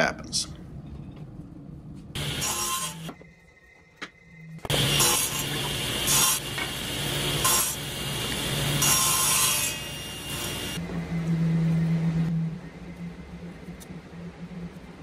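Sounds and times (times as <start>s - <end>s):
table saw motor humming: 2.2s - 3.2s, 4.6s - 10.8s.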